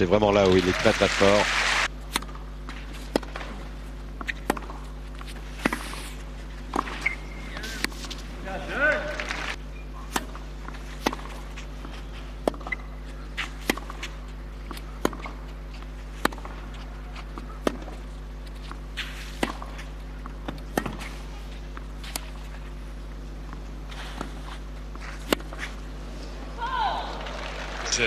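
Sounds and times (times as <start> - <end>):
low hum: 1.4 - 28.0
tennis ball hit by rackets: 2.1 - 8.2, 10.0 - 22.7, 23.5 - 25.9
tennis ball bouncing: 2.1 - 8.4, 9.8 - 26.6.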